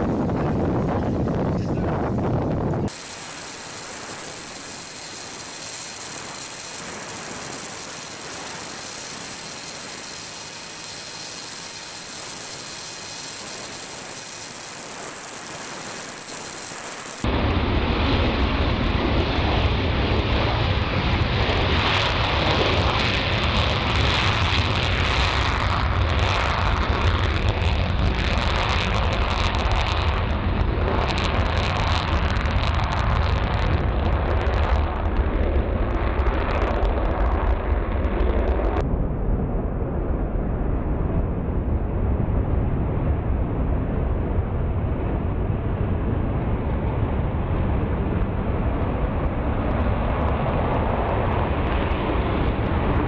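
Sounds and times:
high-pitched jet engine whine: 0:02.9 - 0:38.8.

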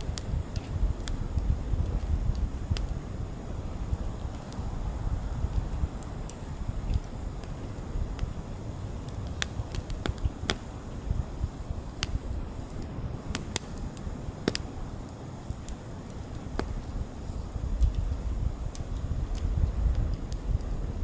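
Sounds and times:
wood fire crackling: 0:00.0 - 0:21.0
sharp pops: 0:09.0 - 0:10.7, 0:12.0 - 0:14.7.

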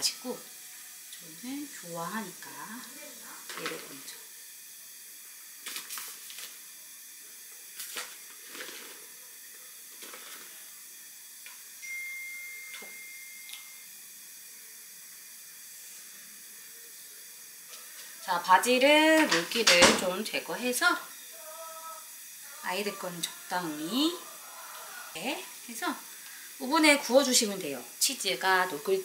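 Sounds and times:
steady hiss: 0:00.0 - 0:29.0
faint steady tone: 0:11.8 - 0:13.9.

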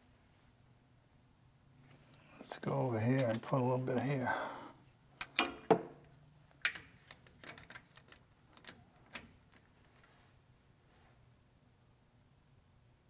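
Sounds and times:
metallic clicks of hand tools: 0:05.2 - 0:05.8.

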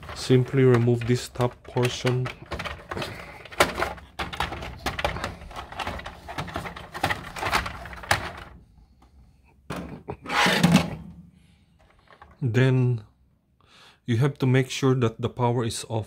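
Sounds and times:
plastic parts clicking and knocking: 0:00.0 - 0:09.1, 0:11.8 - 0:12.4.

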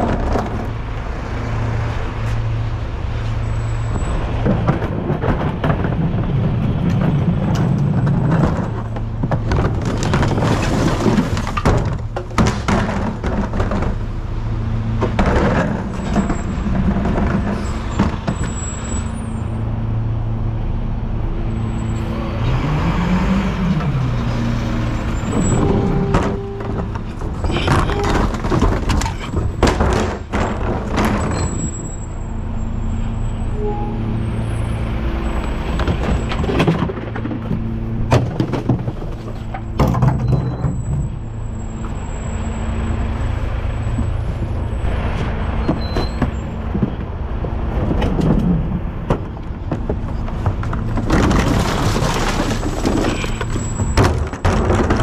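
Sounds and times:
loud clattering and banging: 0:00.0 - 0:00.9, 0:03.9 - 0:14.2, 0:14.9 - 0:19.2, 0:24.7 - 0:32.3, 0:35.5 - 0:42.2, 0:43.9 - 0:55.0.

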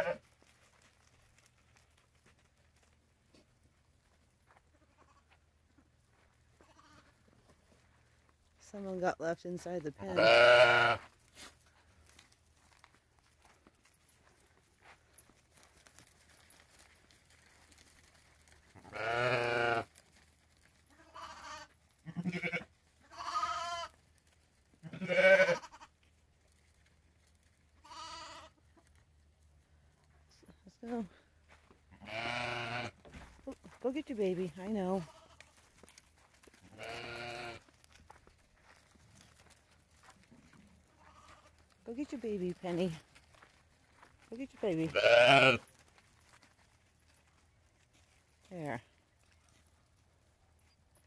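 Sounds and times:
lamb bleating: 0:00.0 - 0:00.2, 0:06.6 - 0:07.1, 0:10.0 - 0:11.0, 0:18.8 - 0:19.9, 0:20.9 - 0:23.9, 0:24.8 - 0:25.9, 0:27.8 - 0:28.6, 0:31.9 - 0:33.0, 0:35.0 - 0:35.6, 0:36.6 - 0:37.6, 0:41.0 - 0:41.5, 0:44.9 - 0:45.6.

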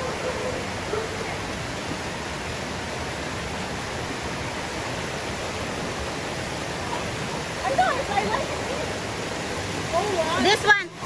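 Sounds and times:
creek rushing over rocks: 0:00.0 - 0:11.0.

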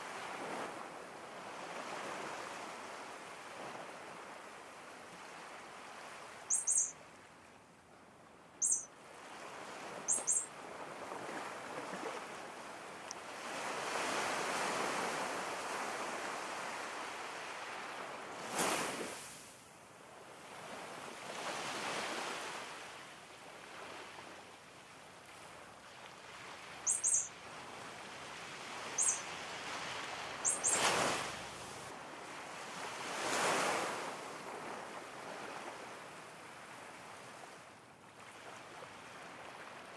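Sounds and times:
ocean surf washing in and out: 0:00.0 - 0:06.9, 0:08.6 - 0:19.6, 0:25.2 - 0:37.6
high bird chirps: 0:06.5 - 0:07.0, 0:08.6 - 0:08.9, 0:10.1 - 0:10.5, 0:26.8 - 0:27.3, 0:28.9 - 0:29.3, 0:30.4 - 0:31.0.

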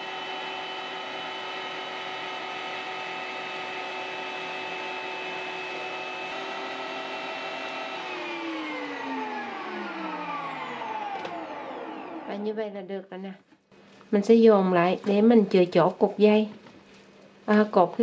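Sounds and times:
electric meat grinder whine: 0:00.0 - 0:12.8.

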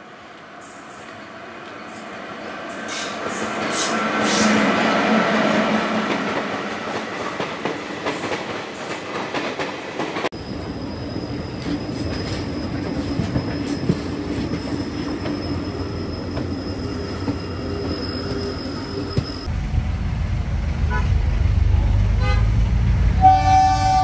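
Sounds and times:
train rumbling: 0:00.6 - 0:24.0
train wheels clattering on track: 0:02.7 - 0:18.4
high-pitched wheel squeal: 0:10.4 - 0:19.5.

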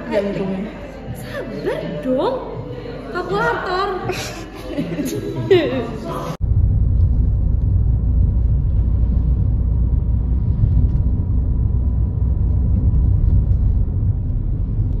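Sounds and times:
car engine and road noise: 0:06.4 - 0:15.0.

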